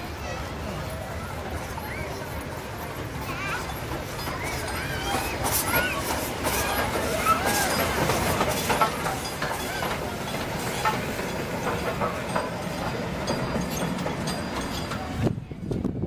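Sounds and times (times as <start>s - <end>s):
steam train running: 0.0s - 16.0s
wheels clicking over rail joints: 0.0s - 16.0s.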